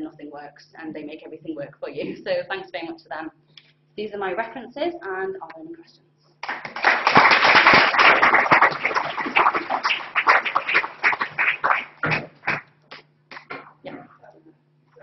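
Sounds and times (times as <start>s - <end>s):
audience applauding: 6.4s - 12.7s.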